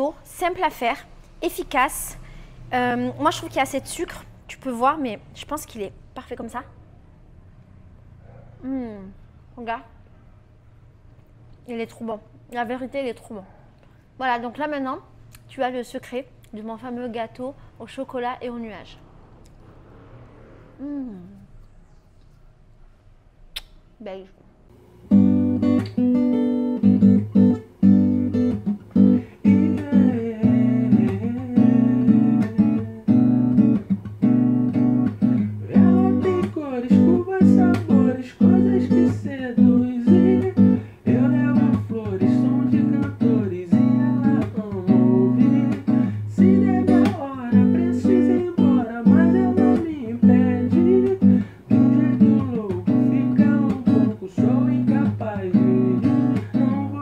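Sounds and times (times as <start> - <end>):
acoustic guitar music: 24.8 - 57.0.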